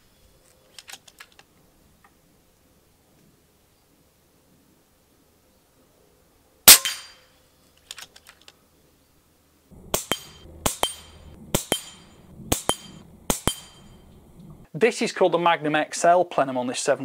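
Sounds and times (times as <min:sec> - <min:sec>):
outdoor background noise: 0:00.0 - 0:17.0
air rifle shot: 0:06.7 - 0:07.2, 0:09.8 - 0:14.1
metal gong target pinging: 0:09.8 - 0:14.6.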